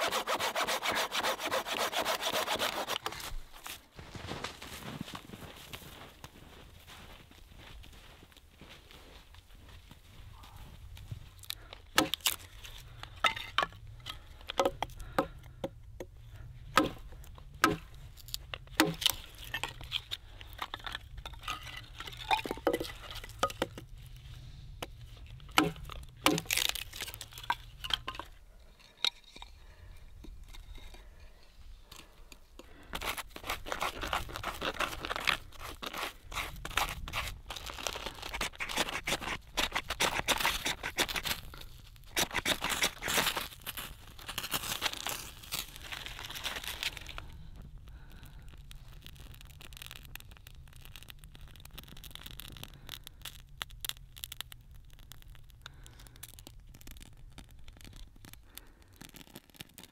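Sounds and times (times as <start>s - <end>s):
knife shaving wood: 0.0s - 3.8s, 32.9s - 47.2s
hatchet splitting kindling: 11.9s - 12.4s, 16.8s - 17.0s, 17.6s - 17.9s, 18.7s - 20.0s, 25.6s - 27.2s.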